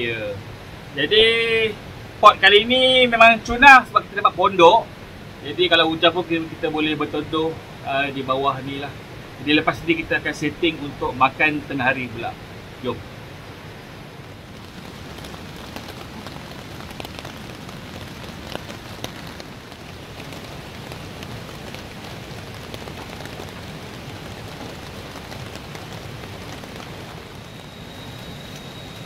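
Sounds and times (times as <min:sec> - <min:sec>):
steady rain: 0:00.0 - 0:29.0
raindrops tapping: 0:14.2 - 0:29.0.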